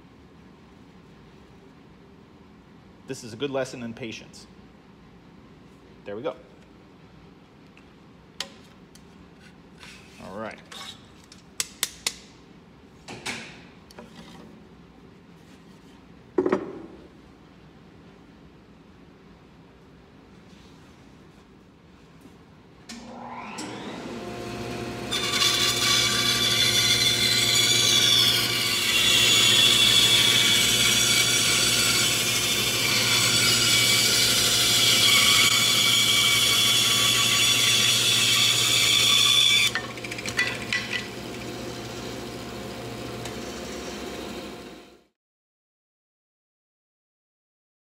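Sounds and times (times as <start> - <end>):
bandsaw running: 23.2 - 45.0.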